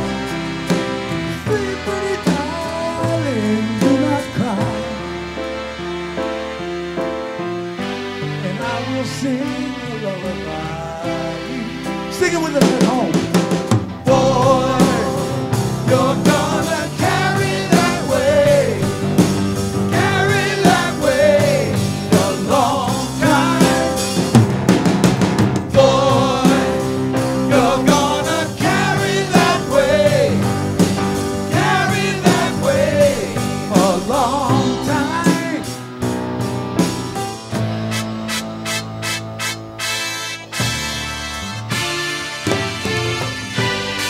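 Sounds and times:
drum kit: 0.0s - 44.0s
electric guitar: 0.0s - 44.0s
men singing: 1.2s - 5.2s, 8.4s - 13.3s, 14.0s - 24.4s, 25.7s - 35.9s.

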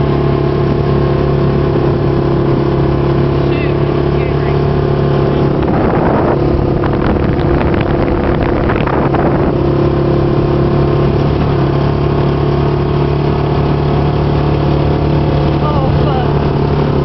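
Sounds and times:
vehicle engine running: 0.0s - 17.0s
rattling noise: 5.4s - 9.6s.

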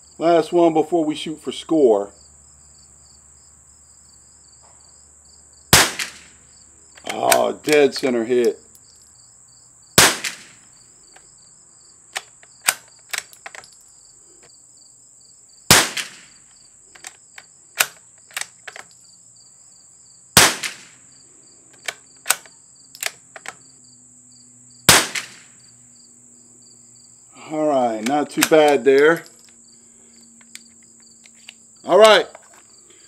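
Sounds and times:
insect buzz with chirps: 1.8s - 33.0s
rifle shots: 5.7s - 6.4s, 10.0s - 10.6s, 15.7s - 16.4s, 20.4s - 21.0s, 24.9s - 25.5s
rifle bolt clicks: 12.2s - 13.8s, 17.0s - 19.0s, 21.8s - 23.6s.

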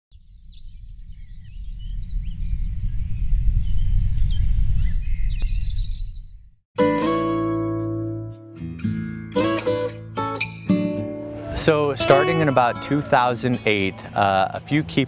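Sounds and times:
birds chirping and calling: 0.2s - 6.5s
loud low rumble: 0.6s - 5.8s.

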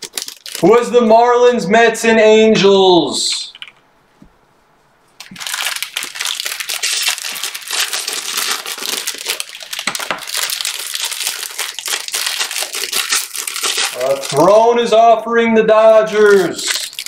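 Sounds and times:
plastic wrapping crinkling: 0.0s - 1.1s, 5.0s - 14.7s, 16.2s - 17.0s.

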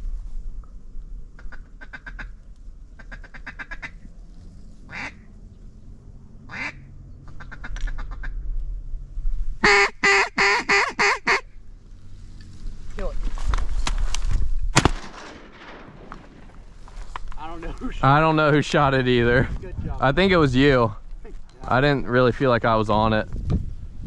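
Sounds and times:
low wind rumble: 0.0s - 24.0s
duck quacking: 4.9s - 5.3s, 6.5s - 8.4s, 9.6s - 11.5s.

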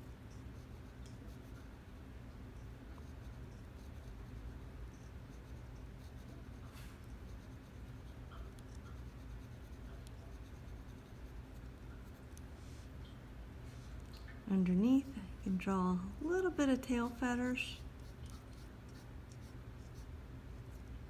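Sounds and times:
steady low hum: 0.0s - 21.0s
pencil scratching on paper: 0.4s - 1.8s, 2.9s - 12.4s, 16.8s - 20.9s.

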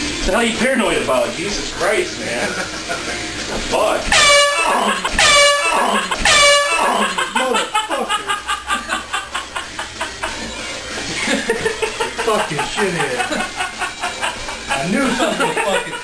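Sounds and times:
air horn blasts: 4.1s - 7.3s.

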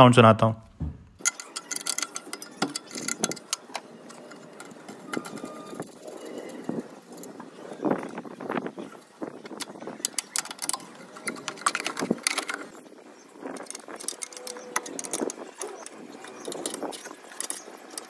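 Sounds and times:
spanner clinking on metal: 1.2s - 7.3s.

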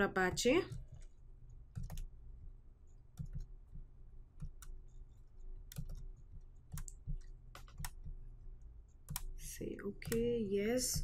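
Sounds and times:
faint low hum: 0.0s - 11.0s
computer mouse clicking: 0.7s - 2.2s, 3.1s - 8.2s, 8.9s - 11.0s.

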